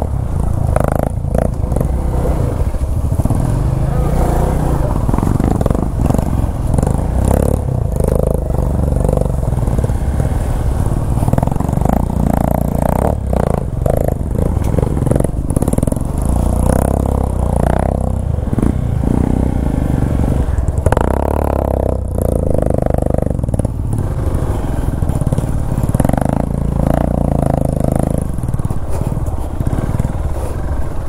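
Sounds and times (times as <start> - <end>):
off-road vehicle engine: 0.0 - 31.0
vehicle knocks and clatter: 22.2 - 30.6.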